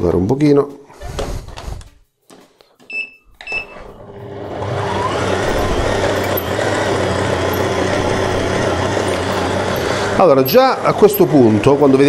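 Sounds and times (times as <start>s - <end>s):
stand mixer motor humming: 4.0s - 12.0s.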